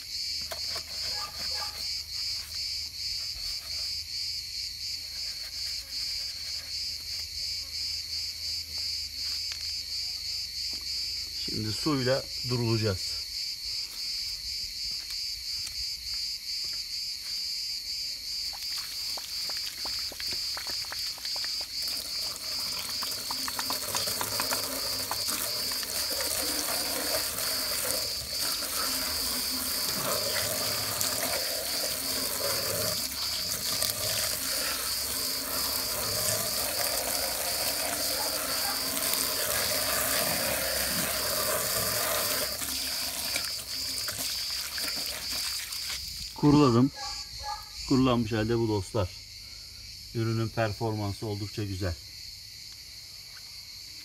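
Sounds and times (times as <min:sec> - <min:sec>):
hose spraying water: 0:18.6 - 0:46.3.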